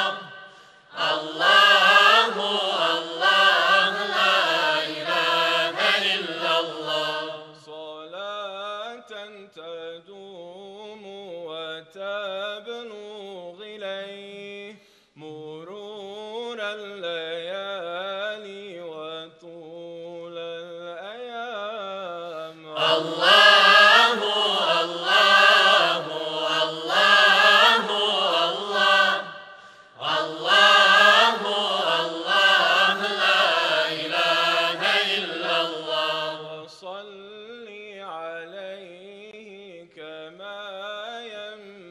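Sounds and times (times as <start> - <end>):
men's choir singing: 0.0 - 8.0, 22.7 - 36.8.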